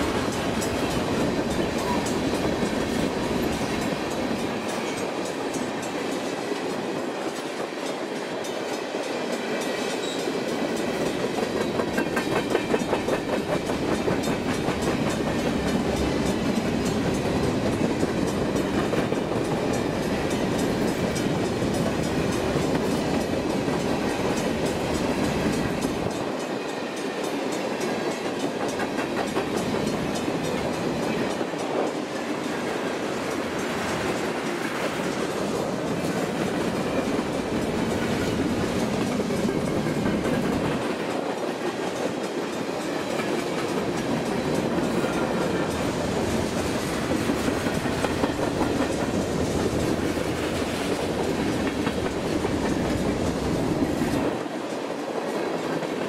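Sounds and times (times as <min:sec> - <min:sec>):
train wheels rumbling on rail: 0:00.0 - 0:56.0
rapid clickety-clack of wheels: 0:09.6 - 0:26.5, 0:27.2 - 0:56.0.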